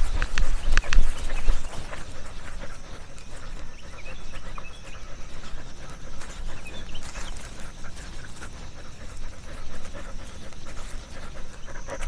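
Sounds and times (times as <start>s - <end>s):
dog panting: 0.0s - 12.0s.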